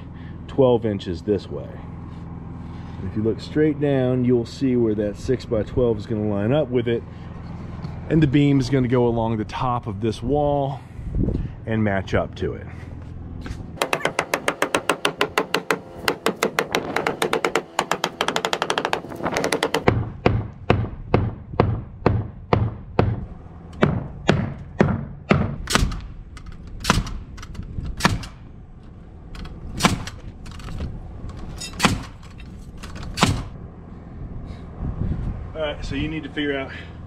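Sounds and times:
pneumatic nail gun shots: 13.8 - 20.0, 23.8 - 28.5, 29.4 - 30.5, 31.6 - 33.6
hammer on wooden post: 13.8 - 26.1.

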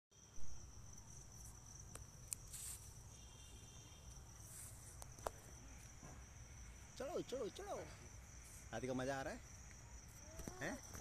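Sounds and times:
crickets trilling: 0.1 - 11.0
thump: 6.0 - 6.2.

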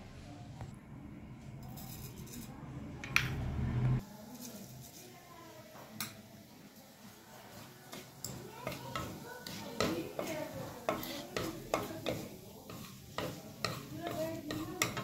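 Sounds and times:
low hum: 2.5 - 4.0
seeds sizzling in hot oil: 4.0 - 15.0.

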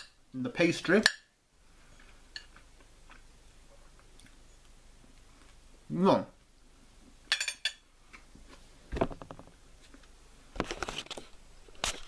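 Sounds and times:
knocks and rustles: 8.9 - 9.6.

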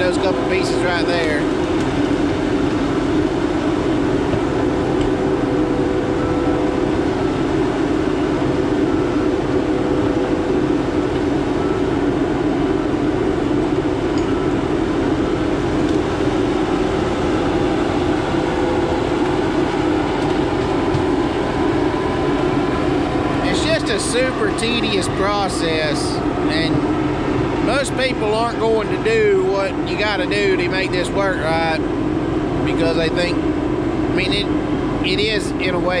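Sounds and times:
diesel engine drone: 0.0 - 36.0
faint steady whine: 0.0 - 36.0.

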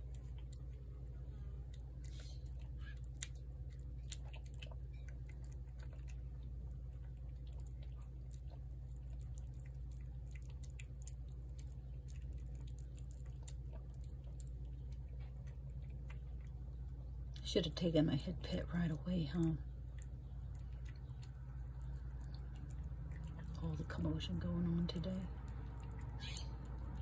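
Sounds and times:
cat chewing and lapping: 0.0 - 27.0
steady low hum: 0.0 - 27.0.

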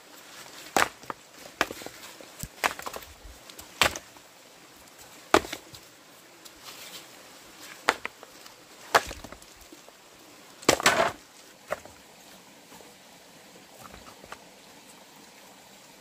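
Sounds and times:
wood being chopped: 0.7 - 3.0, 3.6 - 4.1, 5.3 - 5.6, 7.8 - 8.2, 8.9 - 9.4, 10.6 - 11.9.

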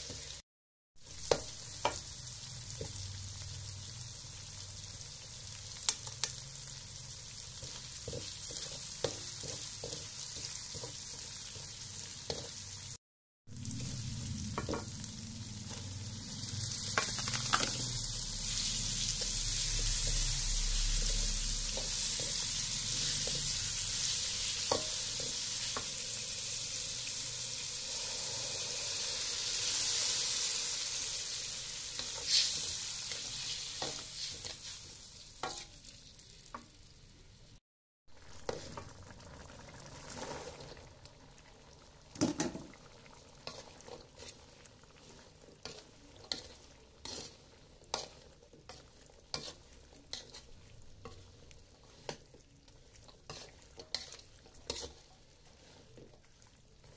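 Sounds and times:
food sizzling in a wok: 0.0 - 0.4, 1.0 - 56.9
ladle scraping a wok: 31.9 - 35.8, 43.4 - 56.9.

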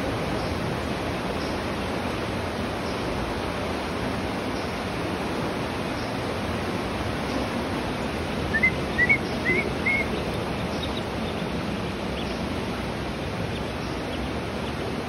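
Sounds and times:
shallow creek rushing: 0.0 - 15.0
duckling peeping: 8.5 - 11.5, 13.5 - 14.8.

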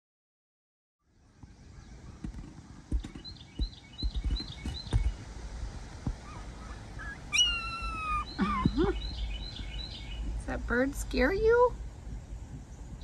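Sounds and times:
small birds chirping: 1.2 - 5.4, 6.1 - 11.8
sharp low thumps: 2.2 - 5.2
whistled bird call: 7.4 - 9.3.

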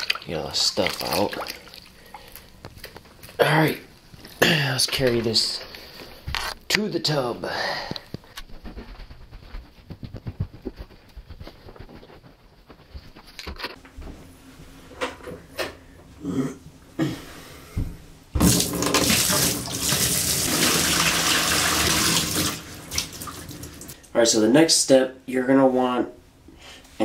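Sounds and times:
water pouring into bathtub: 0.0 - 2.1, 18.4 - 24.0.

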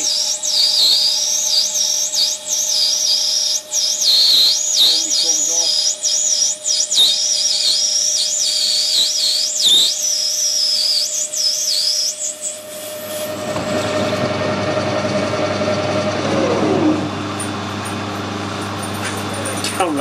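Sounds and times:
high wavering cutting squeal: 0.0 - 17.3
lathe whine: 0.0 - 20.0.

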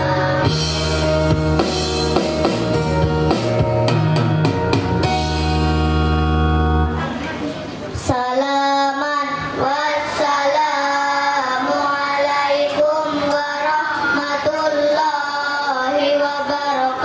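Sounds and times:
child singing into a microphone: 0.0 - 0.8, 8.0 - 17.0.

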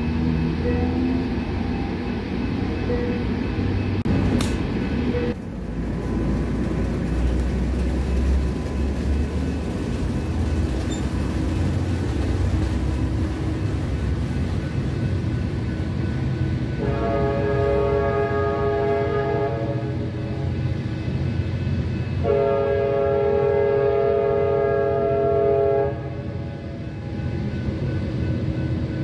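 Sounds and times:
train wheels rumbling on rail: 0.0 - 29.0
train horn: 16.7 - 20.5, 22.2 - 26.7.

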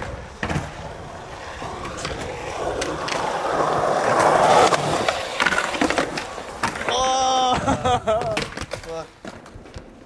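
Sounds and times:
skateboard rolling on concrete: 0.0 - 10.0.

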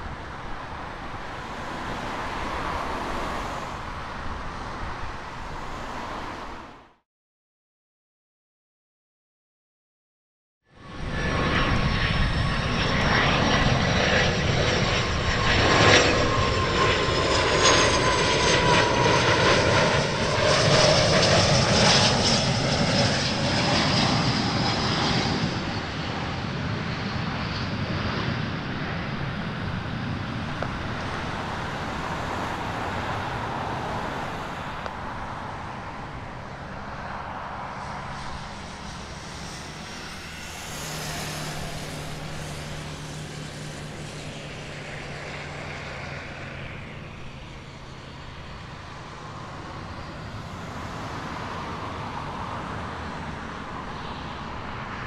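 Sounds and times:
jet engine whine: 0.0 - 7.0, 10.6 - 55.0
jet rumble: 10.8 - 55.0.

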